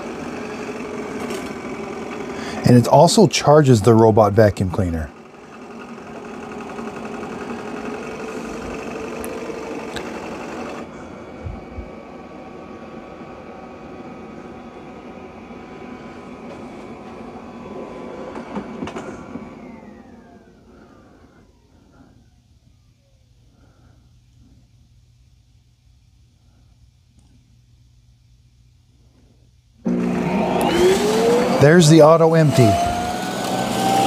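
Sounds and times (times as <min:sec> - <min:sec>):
robot vacuum motor whine: 0:00.0 - 0:03.2, 0:05.1 - 0:22.3, 0:29.8 - 0:34.0.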